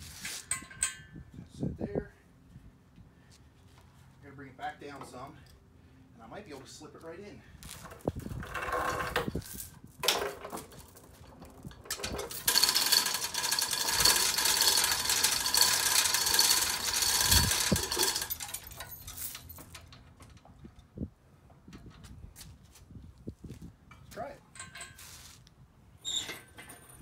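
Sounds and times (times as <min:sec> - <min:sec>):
chain hoist ratchet clicking: 0:11.2 - 0:20.4
chain clinks: 0:12.3 - 0:19.9.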